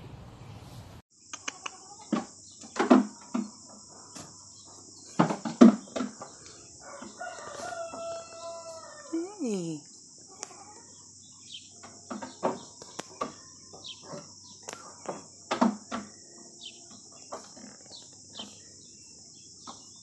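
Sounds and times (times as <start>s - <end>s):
rooster crowing: 6.8s - 9.3s.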